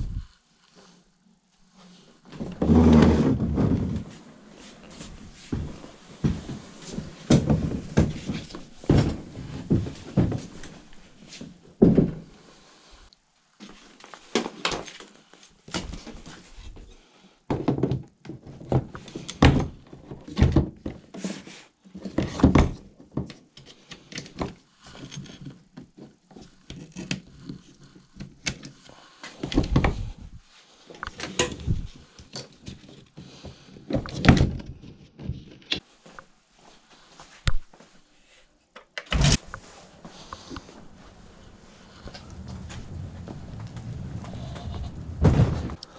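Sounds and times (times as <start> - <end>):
kayak seat thunks and rattles: 44.9 - 45.8.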